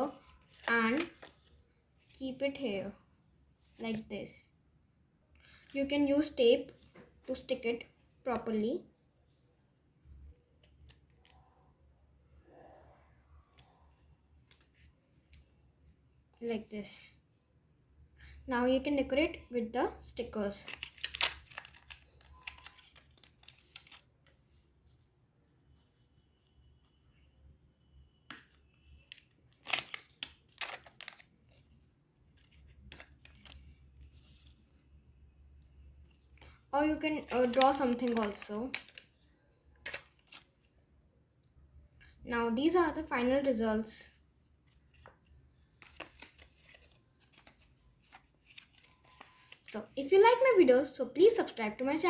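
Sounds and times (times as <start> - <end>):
paper rustling: 0.0 - 2.4, 20.5 - 25.0, 28.3 - 34.8, 36.1 - 39.1, 44.6 - 49.8
plastic sticker sheet crinkling: 0.2 - 1.5, 20.6 - 24.1, 28.3 - 34.6, 36.4 - 39.2, 44.7 - 49.7.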